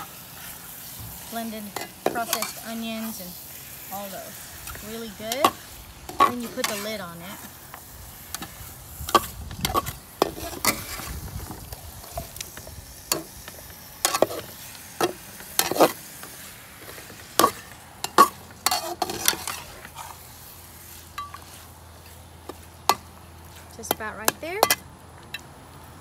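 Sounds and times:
meat sizzling: 0.0s - 24.4s
metal spatula scraping pan: 1.4s - 3.2s, 4.0s - 7.5s, 8.3s - 11.2s, 14.0s - 21.7s.

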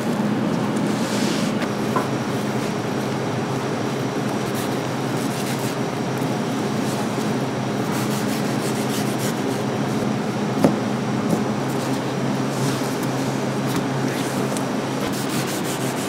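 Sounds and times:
low machine hum: 0.0s - 16.0s
rasping rub: 15.0s - 16.0s.

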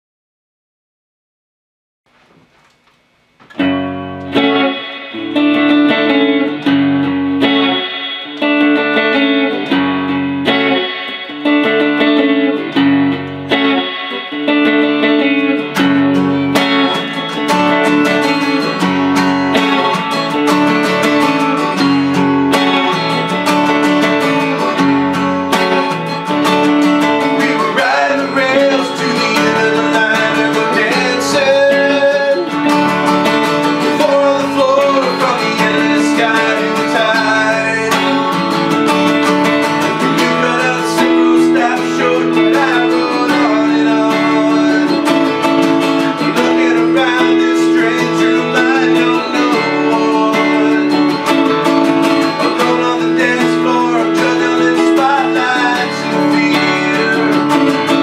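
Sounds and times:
clean electric guitar: 2.3s - 58.0s
acoustic guitar strumming: 3.3s - 58.0s
man singing: 19.5s - 58.0s.

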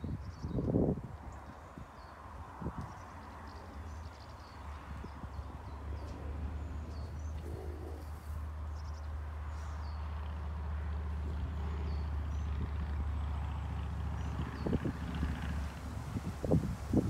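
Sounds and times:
small birds chirping: 0.0s - 10.1s.

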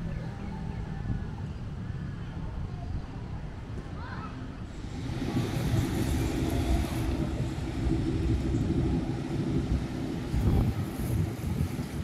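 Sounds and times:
wind buffeting microphone: 4.6s - 12.0s
wash of river water: 4.7s - 12.0s.

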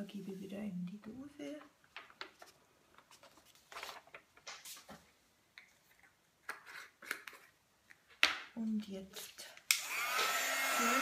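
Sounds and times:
soft handling sounds: 0.0s - 9.6s
paper rustling: 1.6s - 6.1s.

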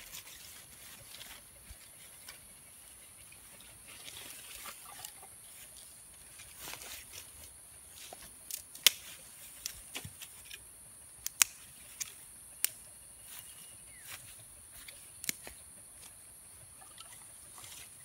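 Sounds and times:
insects droning: 0.0s - 18.0s
sticks snapping: 8.4s - 10.6s, 11.2s - 12.8s, 14.8s - 15.5s.

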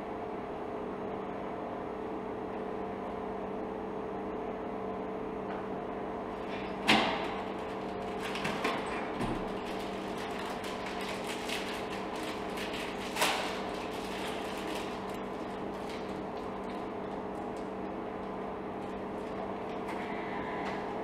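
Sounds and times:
vending machine electrical hum: 0.0s - 21.0s
delivery bin knocking and rattling: 6.8s - 15.1s.

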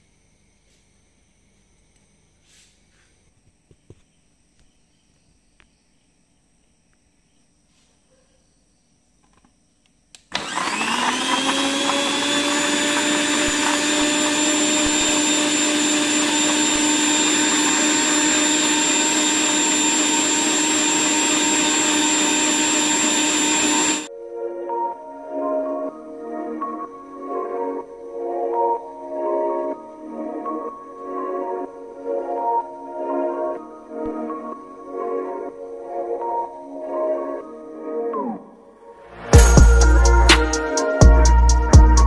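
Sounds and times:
electric blender running: 10.3s - 24.1s.

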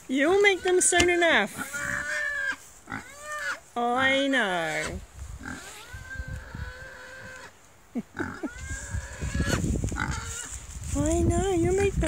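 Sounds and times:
pig squeaks: 0.4s - 3.6s, 4.8s - 7.5s, 8.2s - 10.5s
pigs squealing and whining: 0.4s - 3.6s, 4.7s - 10.5s
shuffling: 9.6s - 12.0s.

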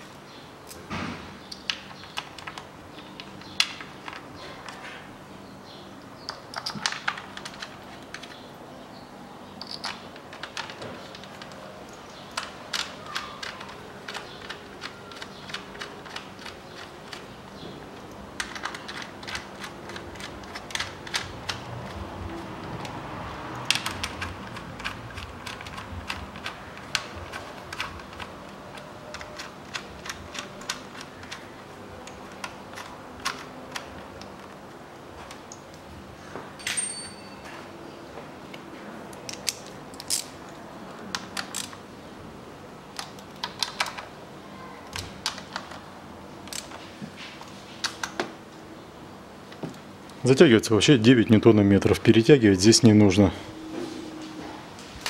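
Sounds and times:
sharp metallic clink: 36.6s - 37.4s.

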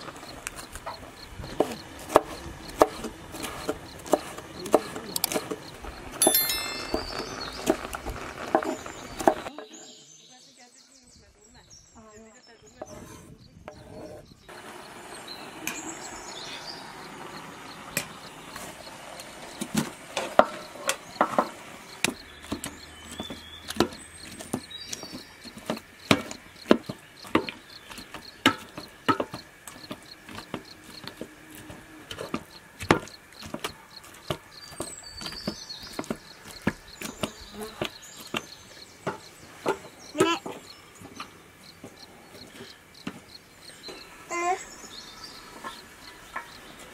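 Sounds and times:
bird chirps: 0.0s - 31.2s, 32.2s - 46.9s
faint insect buzzing: 35.6s - 39.3s.

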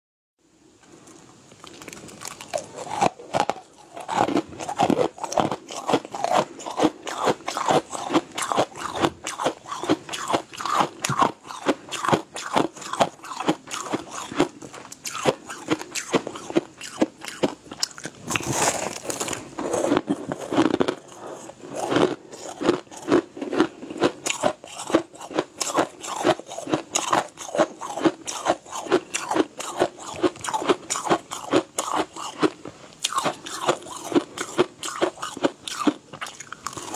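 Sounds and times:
crunching and chewing ice: 1.1s - 36.9s.

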